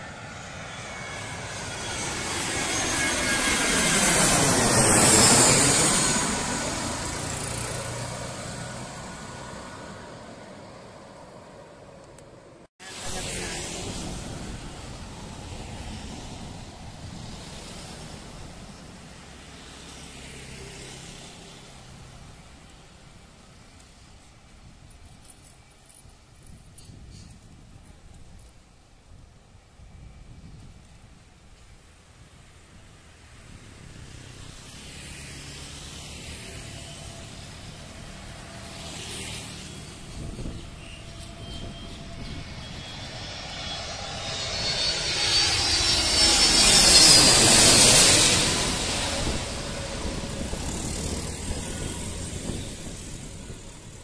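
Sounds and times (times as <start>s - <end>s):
distant engine rushing: 0.0s - 11.9s, 33.8s - 54.0s.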